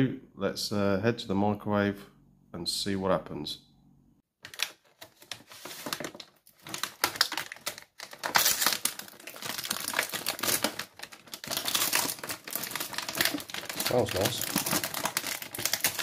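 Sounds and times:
plastic packaging crinkling: 4.4s - 16.0s.

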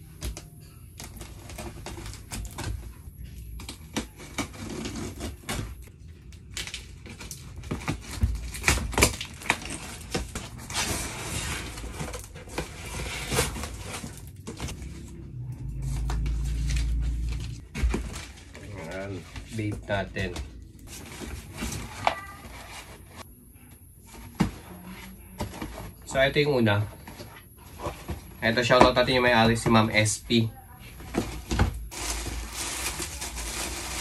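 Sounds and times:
plastic and cardboard crinkling: 0.0s - 23.3s, 24.0s - 34.0s
low rumble: 13.8s - 17.7s.

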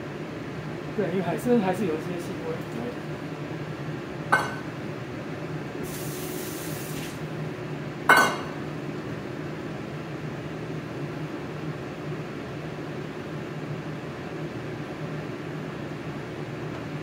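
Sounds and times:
steady low hum: 0.0s - 13.2s
metal bowl clinking: 4.3s - 4.7s, 8.1s - 8.6s.

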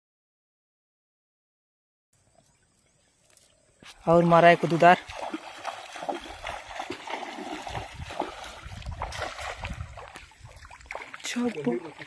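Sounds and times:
cast net hitting water: 4.0s - 12.0s
wading splashes: 4.0s - 12.0s.

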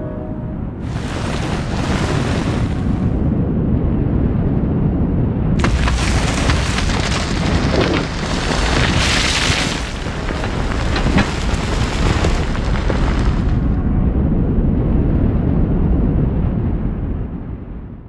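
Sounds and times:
avalanche rumbling: 0.0s - 18.0s
rapid crackle: 0.9s - 3.0s, 5.6s - 13.8s.

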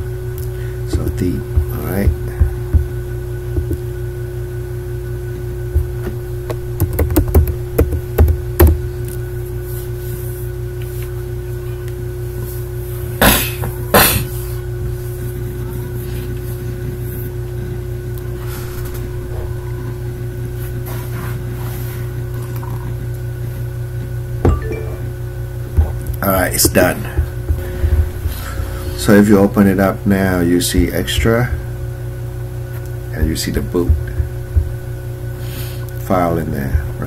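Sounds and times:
steady electrical hum: 0.0s - 37.0s
loud knocks: 0.9s - 3.8s.

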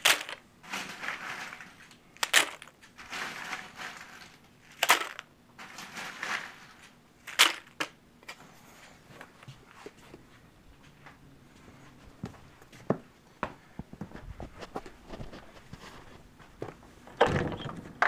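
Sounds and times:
peanut shells crunching on metal: 0.0s - 8.0s.

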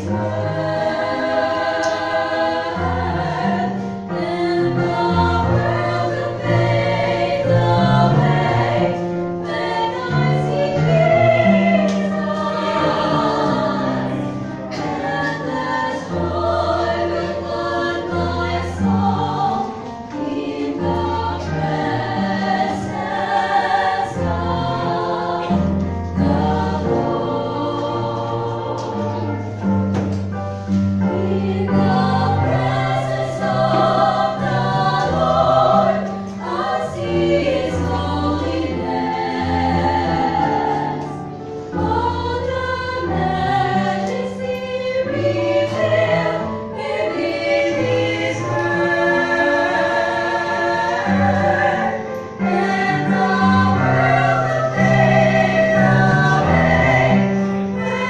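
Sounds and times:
low held accompaniment notes: 0.0s - 58.0s
women singing in harmony: 0.0s - 58.0s.

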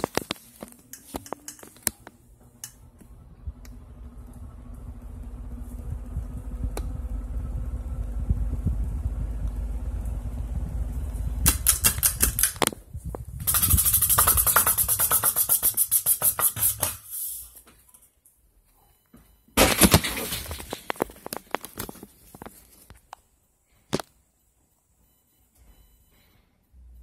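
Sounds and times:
ceiling fan motor humming: 0.1s - 14.9s
bursts of rapid clicking: 11.4s - 12.6s.

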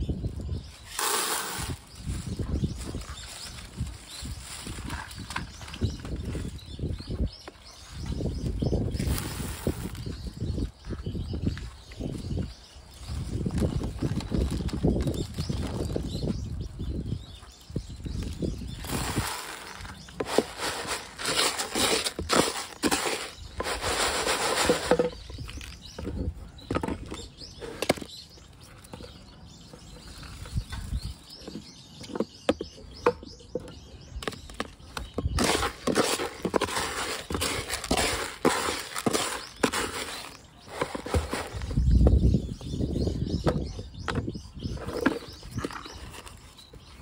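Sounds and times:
clicks of grains and scoop: 0.8s - 1.9s, 18.8s - 25.9s, 35.4s - 41.6s
soil grains pouring into plastic tub: 0.9s - 1.8s.

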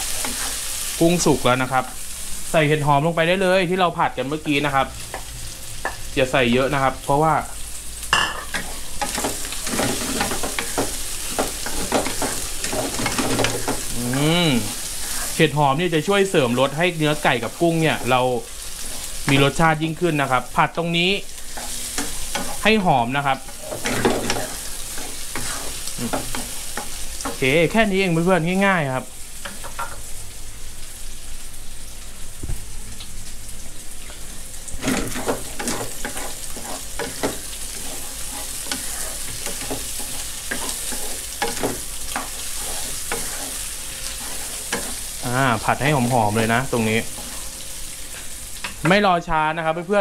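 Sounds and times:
wooden spatula scraping pan: 0.0s - 0.6s, 8.6s - 15.4s, 21.5s - 27.4s, 34.8s - 45.2s, 45.8s - 48.3s
food sizzling in oil: 0.0s - 50.0s.

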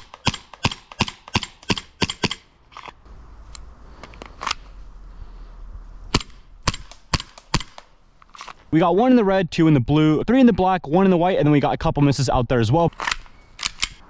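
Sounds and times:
airsoft pistol shots: 6.1s - 7.9s.

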